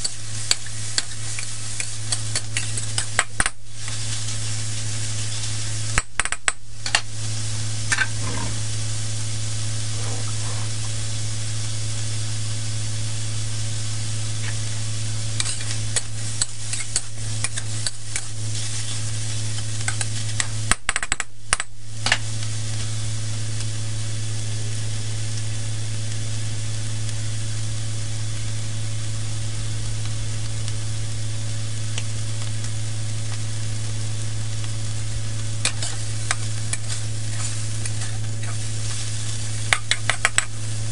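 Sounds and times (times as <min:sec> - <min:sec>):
metal spatula scraping wok: 0:00.0 - 0:03.2, 0:07.9 - 0:08.7, 0:15.3 - 0:20.4, 0:35.6 - 0:40.5
meat and vegetables sizzling in wok: 0:00.0 - 0:40.9
steady low hum: 0:00.0 - 0:40.9.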